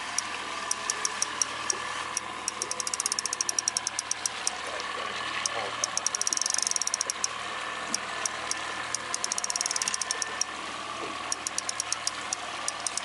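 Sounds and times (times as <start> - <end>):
outboard motor running: 0.0 - 13.0
fishing reel ticking: 0.1 - 4.6, 5.4 - 7.3, 7.9 - 10.5, 11.3 - 13.0.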